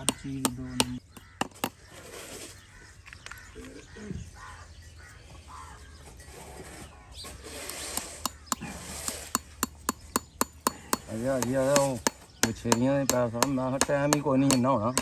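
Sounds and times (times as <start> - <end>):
hammer tapping nails into horseshoe: 0.0 - 1.7, 9.3 - 15.0.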